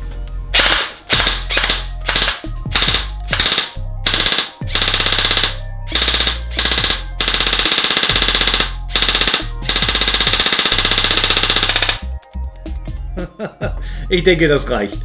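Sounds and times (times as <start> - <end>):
airsoft rifle full-auto bursts: 0.6 - 12.1.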